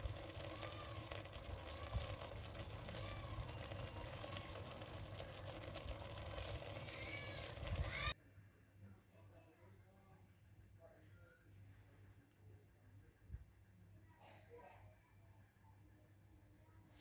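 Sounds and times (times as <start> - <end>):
food sizzling in a pan: 0.0 - 8.1.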